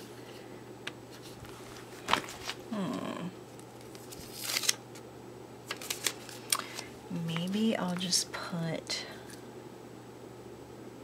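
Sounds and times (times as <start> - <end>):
person humming murmur: 2.7 - 3.4.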